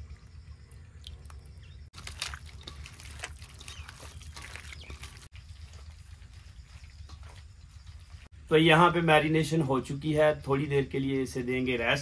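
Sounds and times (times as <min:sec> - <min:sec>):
wet mixing of meat in marinade: 0:01.0 - 0:08.4.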